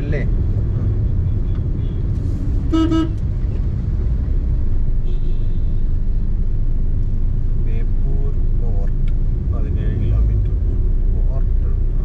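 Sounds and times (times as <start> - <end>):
car interior rumble: 0.0 - 12.0
car horn toot: 2.6 - 3.2, 5.0 - 5.8.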